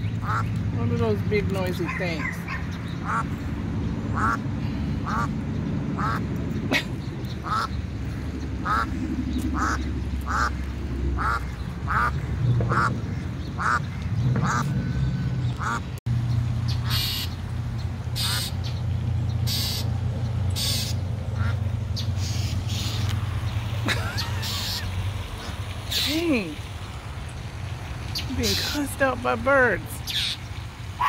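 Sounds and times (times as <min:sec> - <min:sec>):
duck quacking: 0:00.2 - 0:00.5, 0:01.8 - 0:03.3, 0:04.1 - 0:04.4, 0:05.0 - 0:05.4, 0:06.0 - 0:06.2, 0:07.4 - 0:07.8, 0:08.6 - 0:08.9, 0:09.6 - 0:10.6, 0:11.2 - 0:14.8, 0:15.6 - 0:15.9, 0:16.8 - 0:17.3, 0:18.2 - 0:18.6, 0:20.6 - 0:21.6.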